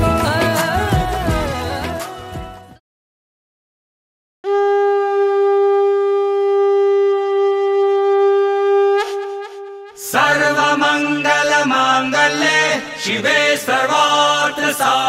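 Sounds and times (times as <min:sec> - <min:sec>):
conch shell blown: 0:04.4 - 0:10.2.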